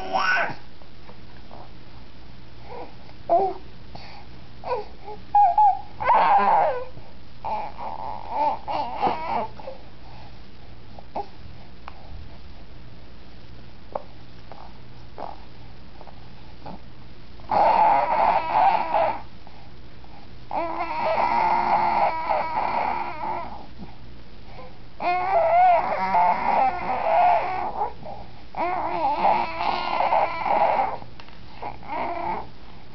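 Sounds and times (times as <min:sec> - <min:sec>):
baby making high-pitched noises: 0:00.0 - 0:00.6, 0:04.7 - 0:09.5, 0:17.5 - 0:19.2, 0:20.5 - 0:23.6, 0:25.0 - 0:28.0, 0:28.6 - 0:31.0.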